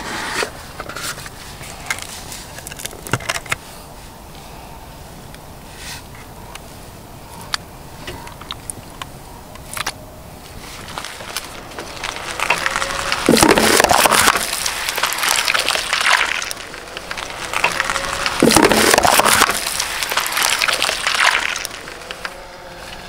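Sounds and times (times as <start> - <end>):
cardboard box crunching under tyre: 10.5 - 23.0.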